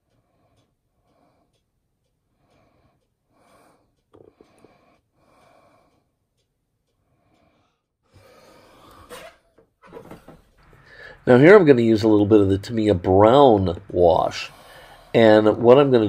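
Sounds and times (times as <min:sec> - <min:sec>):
faint breathing: 0:00.0 - 0:01.7, 0:02.3 - 0:09.5, 0:10.3 - 0:11.4, 0:13.8 - 0:16.0.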